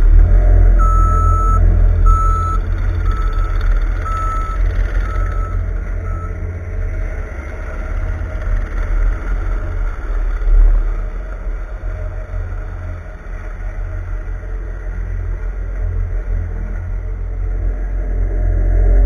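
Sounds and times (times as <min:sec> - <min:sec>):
diesel engine running: 0:00.0 - 0:19.0
backup alarm beeping: 0:00.8 - 0:06.4.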